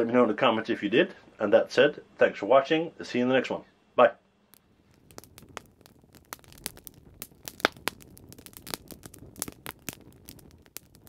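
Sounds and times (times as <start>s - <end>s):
faint low background: 0.0s - 11.0s
wood fire crackling: 4.4s - 11.0s.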